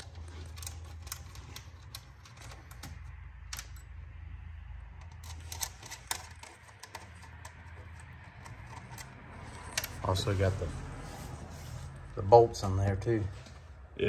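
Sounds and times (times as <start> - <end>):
metal fasteners clicking: 0.0 - 4.0, 5.0 - 10.3.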